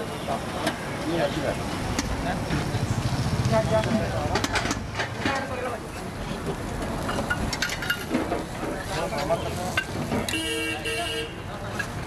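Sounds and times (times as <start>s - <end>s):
busy street noise: 0.0s - 12.0s
vehicle horn beeps: 10.3s - 11.4s.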